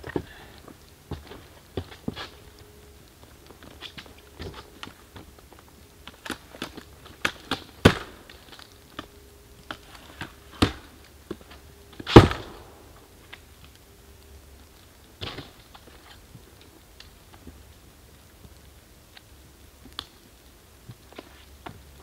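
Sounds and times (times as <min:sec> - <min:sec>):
faint steady hum: 0:00.0 - 0:22.0
loud thumps: 0:12.1 - 0:12.9.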